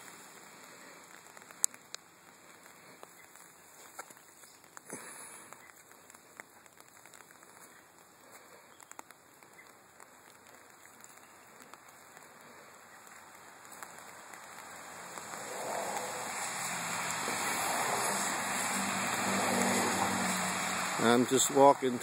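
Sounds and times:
rain pattering: 0.0 - 22.0
rushing hiss: 12.4 - 22.0.

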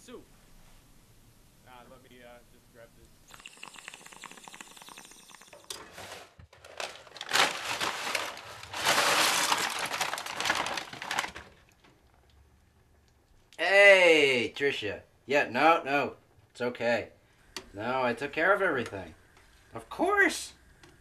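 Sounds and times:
dense crackling clicks: 6.6 - 13.6.

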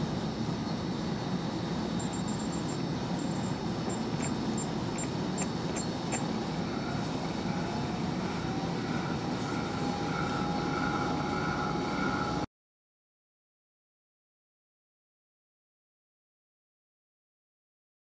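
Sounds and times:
faint high whine: 0.0 - 12.5
lab shaker humming: 1.7 - 7.5.

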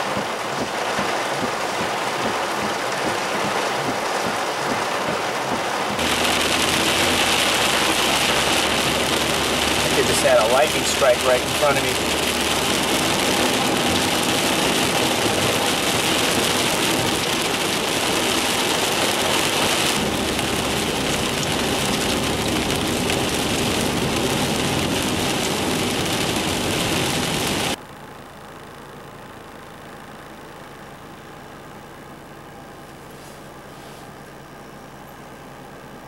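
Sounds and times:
heavy rain on car roof: 0.0 - 27.8
car engine: 0.0 - 36.0
wet tyres on road: 0.0 - 36.0.

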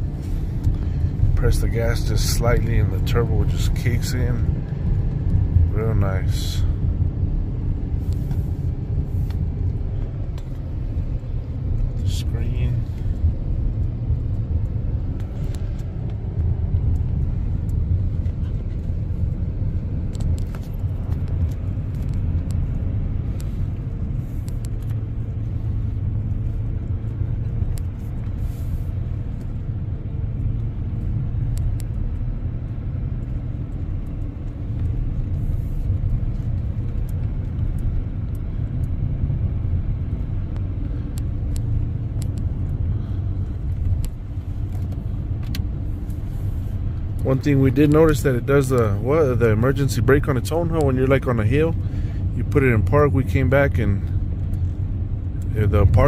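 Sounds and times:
truck engine and tyre noise: 0.0 - 56.0
faint light ticks: 20.1 - 25.4, 26.4 - 29.8, 30.4 - 32.3, 33.0 - 46.3.

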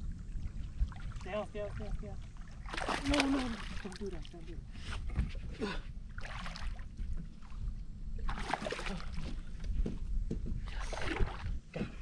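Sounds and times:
steady low rumble: 0.0 - 12.0
fish splashing in water: 2.5 - 4.0.

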